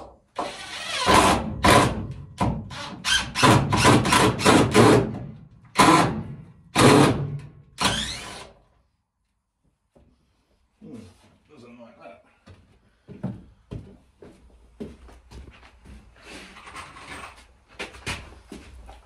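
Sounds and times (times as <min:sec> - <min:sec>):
cordless drill driving a screw: 0:07.8 - 0:08.5.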